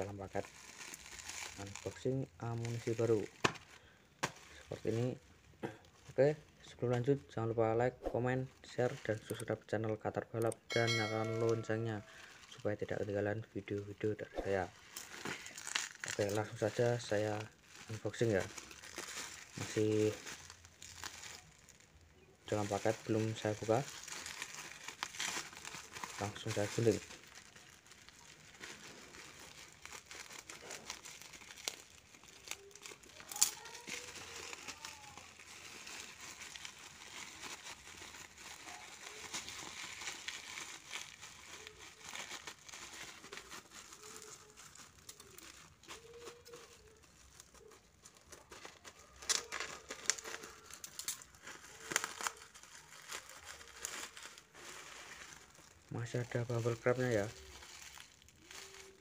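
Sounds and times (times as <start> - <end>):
plastic bag crinkling: 0.0 - 7.4, 8.2 - 59.0
bubble wrap handled: 0.0 - 59.0
scissors cutting plastic: 29.6 - 53.8.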